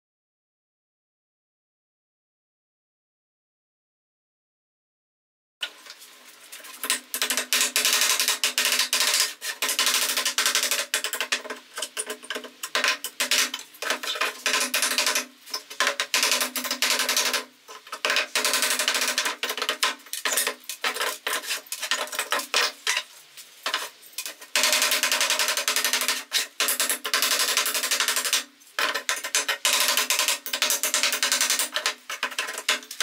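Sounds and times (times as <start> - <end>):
hammer striking nails in wood: 6.8 - 22.8, 24.6 - 33.0.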